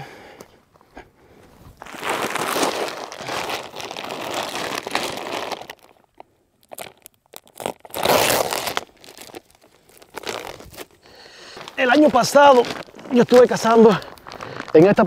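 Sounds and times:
sack of grain rustling: 0:01.6 - 0:06.0, 0:06.7 - 0:15.0.

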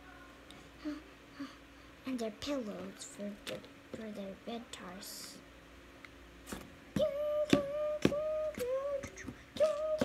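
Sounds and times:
high voice making sing-song sounds: 0:06.9 - 0:10.0.

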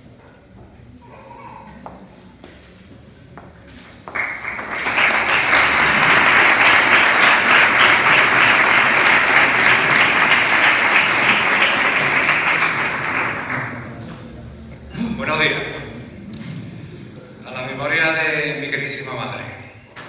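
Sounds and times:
crowd applauding: 0:04.1 - 0:14.4.

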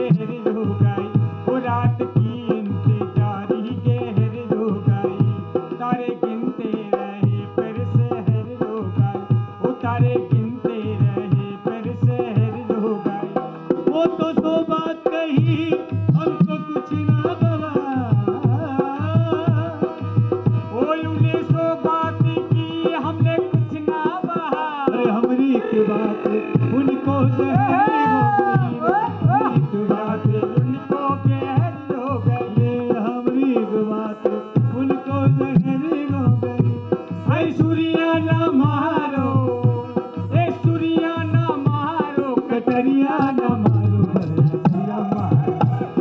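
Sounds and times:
hand drum fast rhythm: 0:00.0 - 0:46.0
winding melody line: 0:25.4 - 0:29.0.

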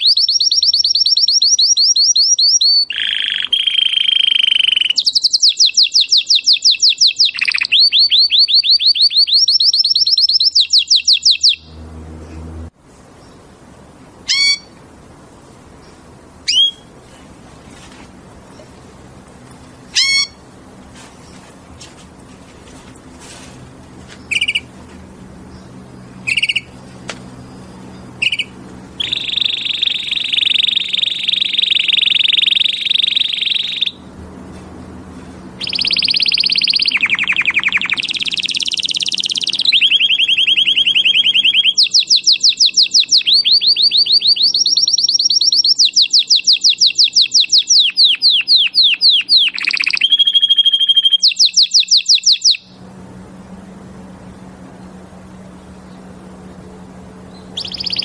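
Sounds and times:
canary singing: 0:00.0 - 0:13.5, 0:14.2 - 0:14.8, 0:16.4 - 0:16.9, 0:18.5 - 0:20.5, 0:24.0 - 0:34.1, 0:34.8 - 0:52.8, 0:53.6 - 0:58.0.

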